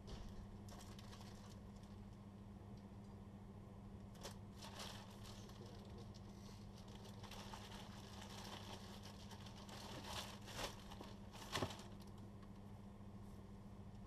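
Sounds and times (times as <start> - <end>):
plastic bags crinkling: 0.7 - 2.0, 4.1 - 12.2.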